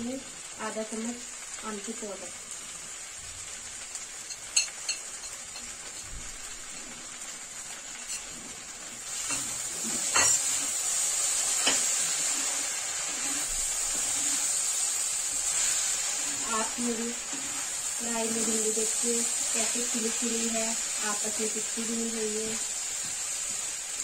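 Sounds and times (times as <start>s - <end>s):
okra sizzling in a pan: 0.0s - 24.0s.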